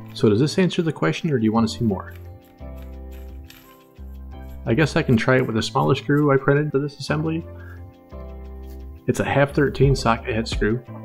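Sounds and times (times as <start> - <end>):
background music held chords: 0.0 - 11.0.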